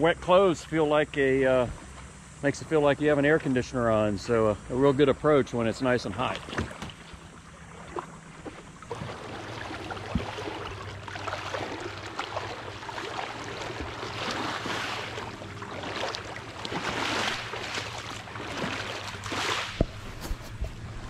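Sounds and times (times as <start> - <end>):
water sloshing around kayak hull: 5.3 - 21.0.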